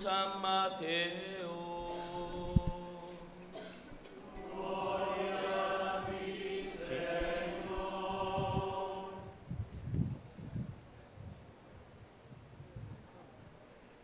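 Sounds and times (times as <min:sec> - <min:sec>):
choir singing: 0:04.2 - 0:09.4.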